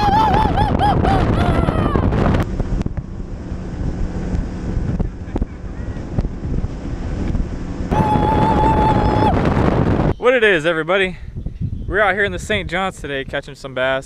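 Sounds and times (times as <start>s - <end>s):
outboard motor hum: 0.0s - 10.2s
wind buffeting microphone: 0.0s - 14.0s.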